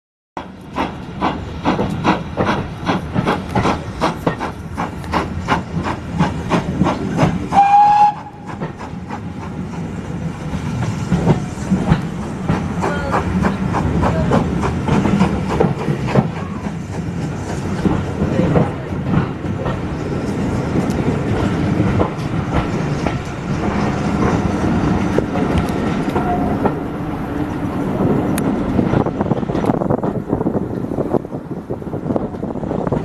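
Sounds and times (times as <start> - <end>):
steam locomotive exhaust beats: 0.4 - 33.0
train wheels clattering on rails: 0.4 - 33.0
steam whistle blast: 7.5 - 8.5.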